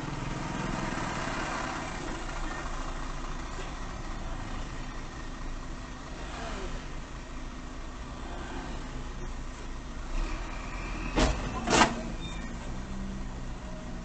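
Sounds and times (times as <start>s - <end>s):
vehicle engine idling: 0.0s - 10.6s.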